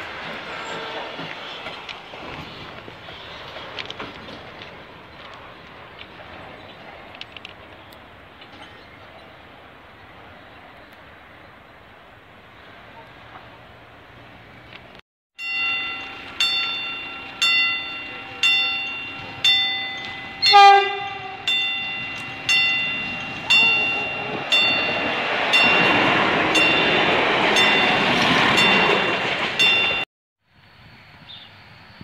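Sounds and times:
train passing: 0.0s - 31.0s
level crossing bell: 15.4s - 30.1s
train horn blast: 17.1s - 25.1s.

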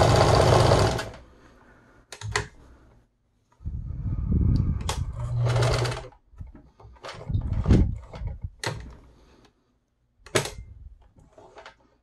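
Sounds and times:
sewing machine clicks: 0.0s - 1.2s, 4.8s - 6.2s.

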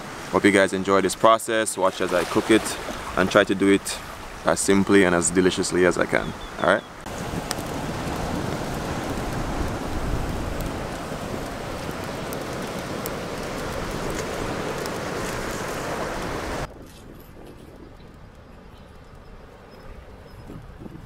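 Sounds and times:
wind buffeting microphone: 2.2s - 21.0s
crackling wood fire: 7.0s - 19.6s.

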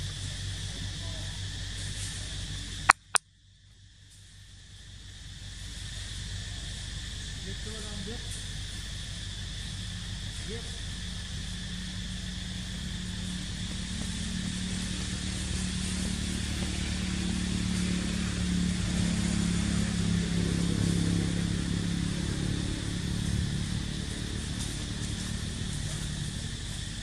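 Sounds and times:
constant high hiss: 0.0s - 27.0s
passing vehicle engine drone: 5.9s - 27.0s.

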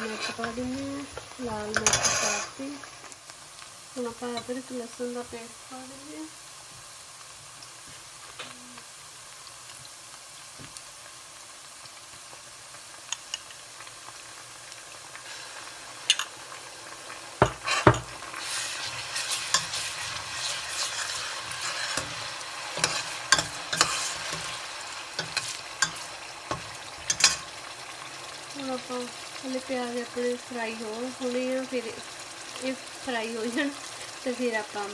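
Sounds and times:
onions sizzling in hot oil: 0.0s - 34.9s
ladle stirring and scraping: 1.8s - 2.6s, 17.4s - 27.5s.

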